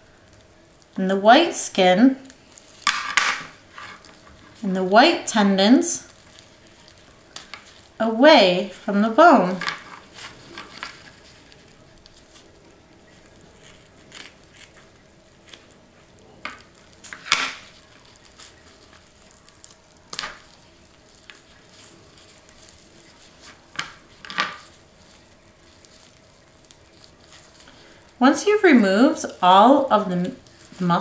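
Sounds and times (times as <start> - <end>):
wet squelches and crackles: 6.0 - 8.0, 8.7 - 31.0.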